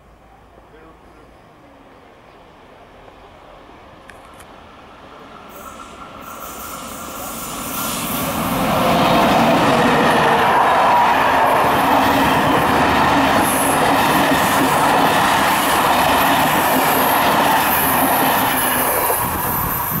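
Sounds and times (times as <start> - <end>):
train wheels rushing on rails: 4.6 - 20.0.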